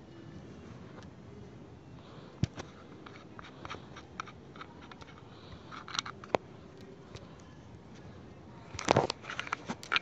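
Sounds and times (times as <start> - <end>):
handling clicks and knocks: 8.7 - 10.0.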